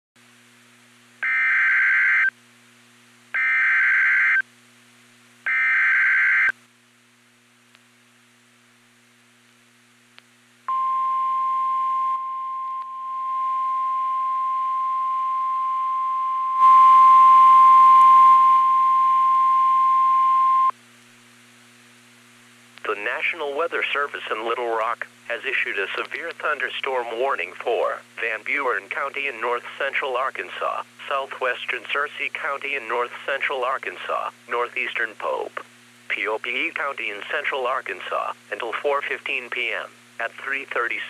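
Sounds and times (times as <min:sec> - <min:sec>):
faint low hum: 0:00.2 - 0:41.0
buzzing data tones: 0:01.2 - 0:02.3, 0:03.4 - 0:04.4, 0:05.5 - 0:06.5
steady warning alarm tone: 0:01.2 - 0:02.3, 0:03.4 - 0:04.4, 0:05.5 - 0:06.5.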